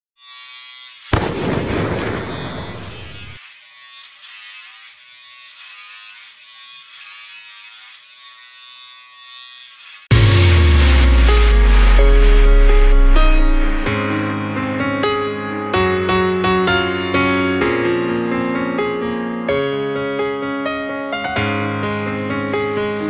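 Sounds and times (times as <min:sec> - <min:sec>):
electric hair clippers buzzing: 0:00.2 - 0:13.9
loud boom: 0:01.2 - 0:03.4
loud electronic music: 0:10.1 - 0:13.9.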